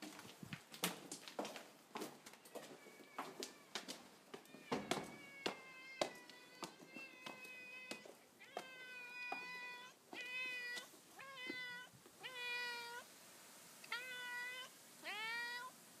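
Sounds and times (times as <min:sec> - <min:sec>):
cat meowing: 0:04.4 - 0:13.1, 0:13.8 - 0:15.8.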